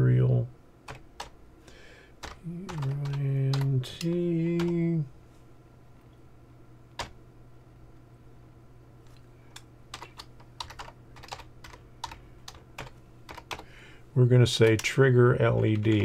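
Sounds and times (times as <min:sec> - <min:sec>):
computer keyboard typing: 0:00.9 - 0:01.4, 0:02.2 - 0:04.8, 0:06.9 - 0:07.2, 0:09.6 - 0:13.7, 0:15.6 - 0:16.0.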